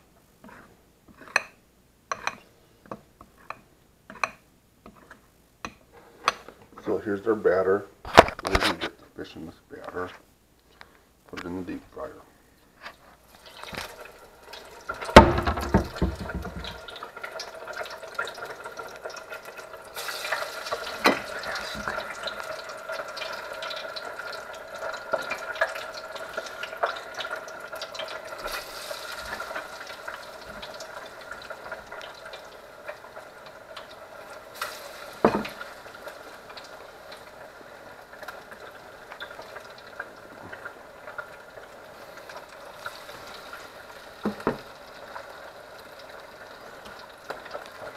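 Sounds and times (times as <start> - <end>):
oil bubbling and crackling: 12.8 - 47.9
sharp pops of frying oil: 14.9 - 19.0, 34.6 - 36.7, 44.2 - 44.8
loud knock: 15.2 - 16.8.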